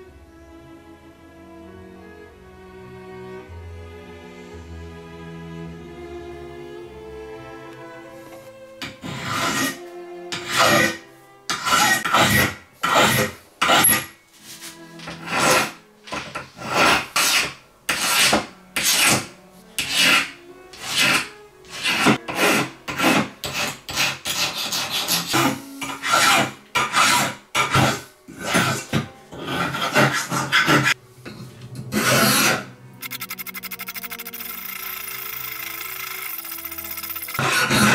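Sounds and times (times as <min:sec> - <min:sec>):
hand file rasping on metal: 0:08.8 - 0:31.0.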